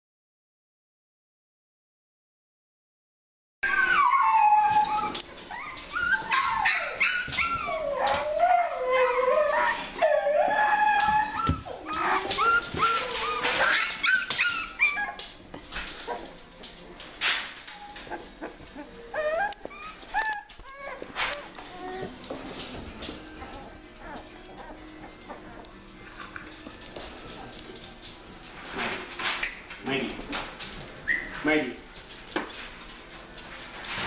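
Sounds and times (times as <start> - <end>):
puppies whining and crying: 3.6 - 29.1, 30.3 - 31.5.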